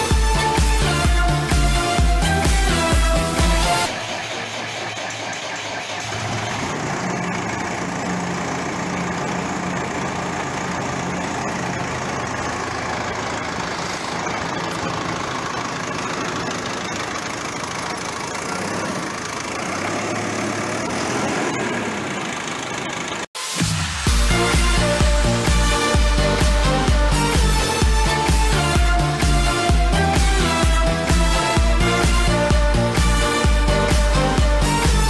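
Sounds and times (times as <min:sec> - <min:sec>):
diesel engine idling: 0:00.0 - 0:23.3.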